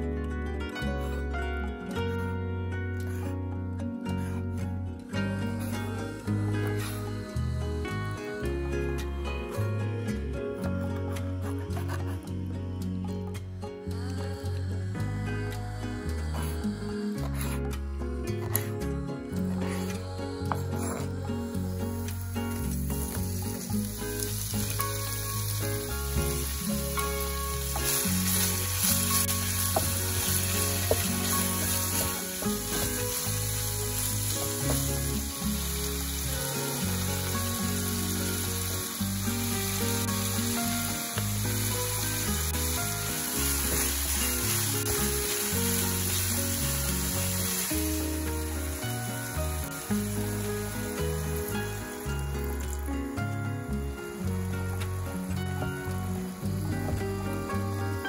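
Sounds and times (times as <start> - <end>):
background music: 0.0 - 58.0
food sizzling in frying pan: 21.5 - 58.0.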